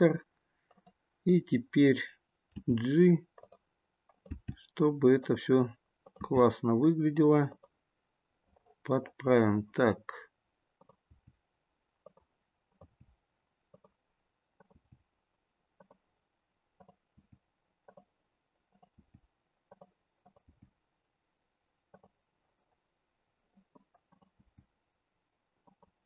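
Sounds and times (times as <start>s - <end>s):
computer mouse clicks: 0.7s - 1.0s, 3.3s - 4.6s, 6.0s - 6.4s, 7.5s - 7.8s, 10.8s - 11.1s, 12.0s - 13.1s, 13.7s - 14.0s, 14.6s - 15.0s, 15.8s - 16.0s, 16.8s - 18.1s, 18.7s - 20.7s, 21.9s - 22.2s, 23.5s - 24.7s, 25.6s - 26.0s.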